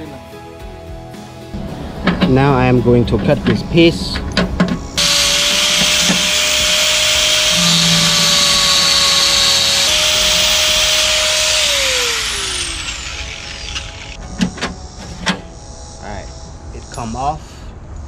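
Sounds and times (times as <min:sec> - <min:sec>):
angle grinder cutting metal: 0:05.0 - 0:14.2
grinder disc spinning down: 0:05.0 - 0:14.2.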